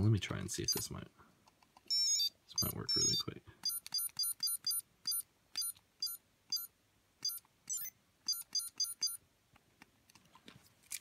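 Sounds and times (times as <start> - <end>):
short electronic beeps: 1.9 - 9.2.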